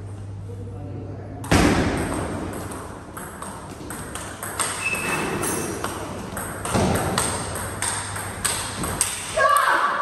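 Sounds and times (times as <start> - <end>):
table tennis ball clicking: 2.5 - 4.9, 5.8 - 9.3.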